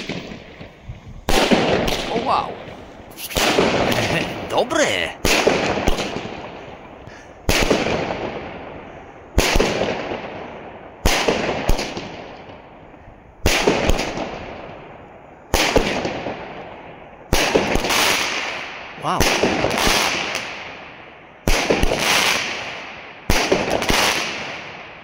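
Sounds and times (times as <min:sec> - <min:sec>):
firework bangs: 0:00.0 - 0:12.7, 0:13.4 - 0:25.0
firework crack: 0:00.0 - 0:25.0.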